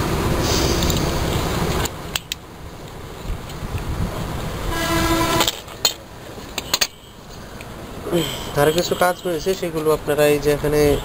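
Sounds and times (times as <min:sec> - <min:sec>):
low rumble of distant traffic: 0:00.0 - 0:11.0
horn toot: 0:04.7 - 0:05.7.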